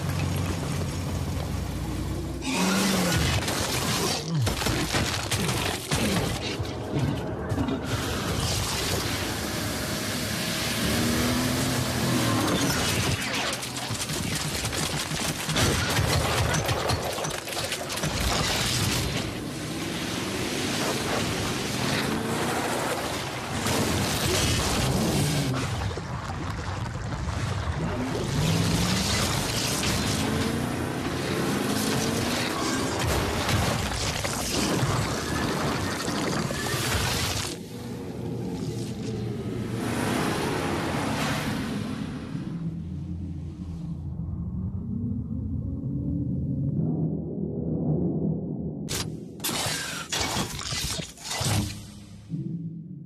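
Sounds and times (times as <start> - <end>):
rushing and rumbling effects: 10.9 - 53.0
rapid crackling clatter: 12.7 - 19.2
rising tone: 42.4 - 49.3, 52.2 - 53.0.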